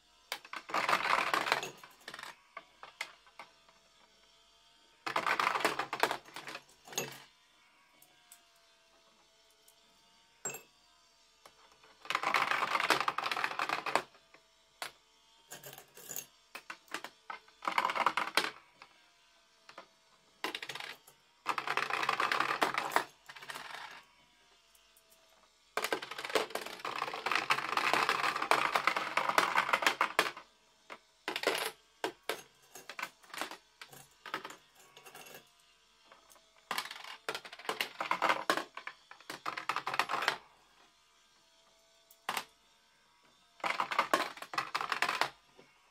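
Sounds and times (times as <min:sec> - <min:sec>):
coins clattering in coin pusher: 0:00.3 - 0:03.4, 0:05.1 - 0:07.3, 0:10.4 - 0:10.7, 0:12.0 - 0:14.1, 0:15.5 - 0:18.6, 0:20.4 - 0:24.0, 0:25.8 - 0:30.4, 0:31.3 - 0:35.5, 0:36.7 - 0:40.4, 0:43.6 - 0:45.4.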